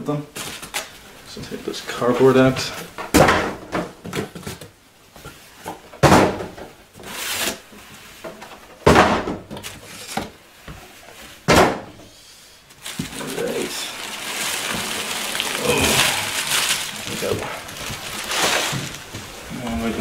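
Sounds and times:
cardboard scraping and rustling: 7.0s - 8.1s, 12.8s - 20.0s.

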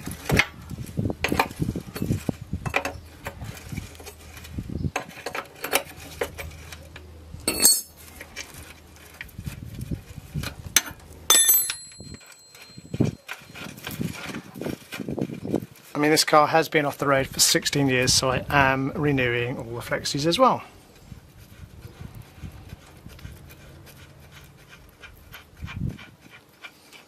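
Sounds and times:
spanner clanking and ringing: 7.5s - 8.0s, 10.8s - 13.1s.

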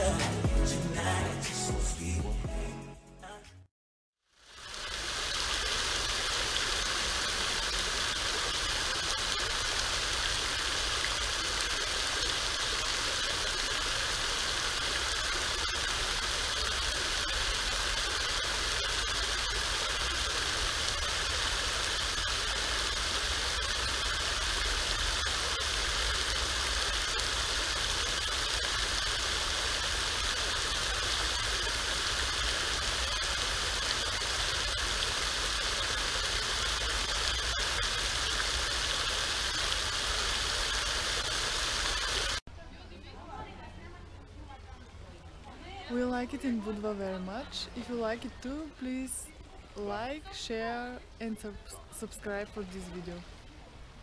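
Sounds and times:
fountain water splashing: 4.3s - 42.4s.

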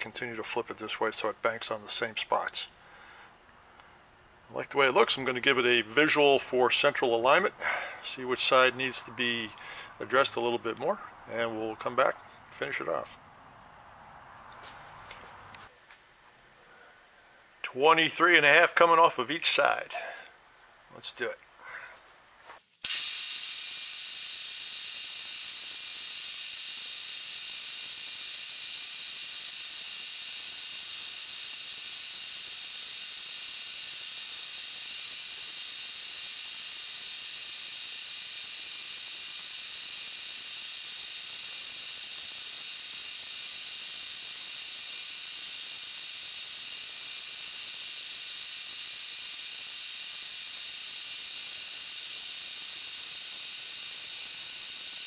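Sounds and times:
cutting hiss: 21.6s - 55.0s
milling machine high-pitched whine: 22.8s - 55.0s.

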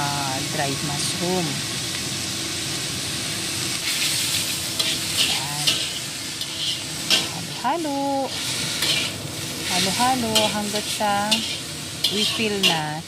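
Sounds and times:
mushrooms sizzling in a wok: 0.0s - 13.0s
spatula scraping a wok: 3.8s - 13.0s.

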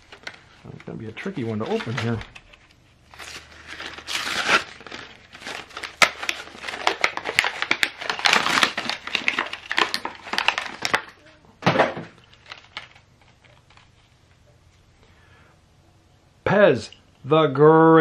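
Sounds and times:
plastic crinkling and crackling: 0.0s - 11.4s, 12.1s - 14.4s
cardboard ripping: 3.1s - 11.1s.

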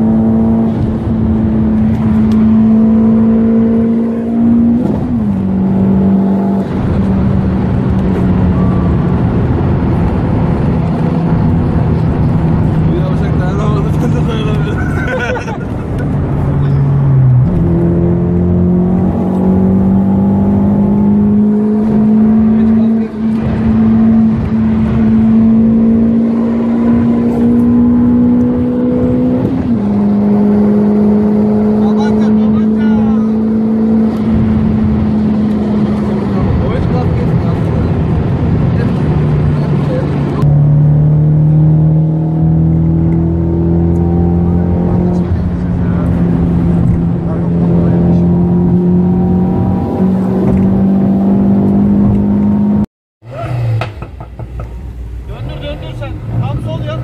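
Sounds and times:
car engine droning: 0.0s - 57.0s.

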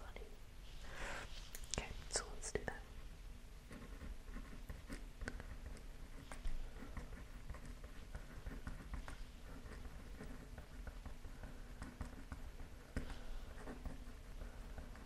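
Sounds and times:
pen scratching on paper: 3.7s - 15.0s.

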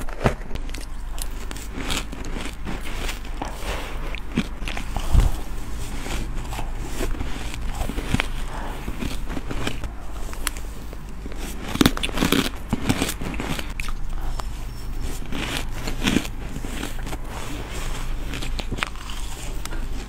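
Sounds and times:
crunching crushed ice: 0.0s - 20.0s
spoon scraping through ice: 10.4s - 20.0s.

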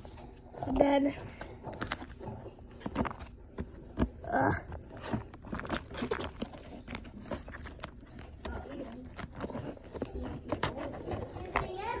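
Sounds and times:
phone handling rustles and taps: 1.3s - 12.0s.

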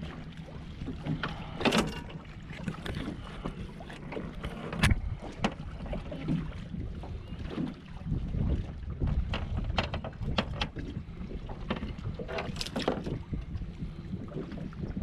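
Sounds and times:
water and wind rumble: 0.0s - 15.0s
knocks on boat: 9.0s - 10.8s.

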